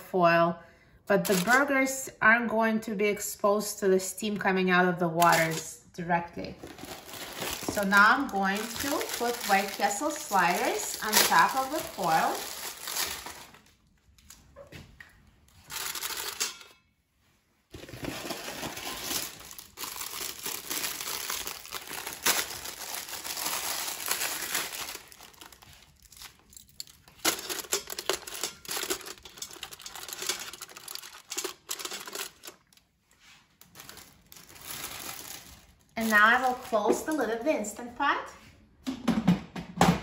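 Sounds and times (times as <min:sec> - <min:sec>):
plastic wrappers crinkling: 0:01.2 - 0:01.7, 0:05.2 - 0:05.7, 0:06.4 - 0:16.7, 0:17.7 - 0:37.4.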